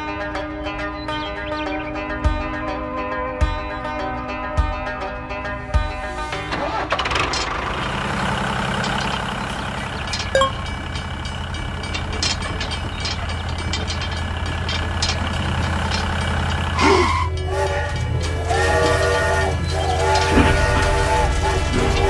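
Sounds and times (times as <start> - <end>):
vehicle engine droning: 5.8 - 22.0
train horn: 16.8 - 22.0.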